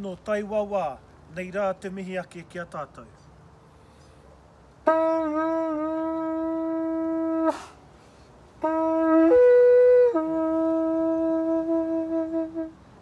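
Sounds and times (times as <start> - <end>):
conch-shell trumpet notes: 4.8 - 7.8, 8.6 - 13.0.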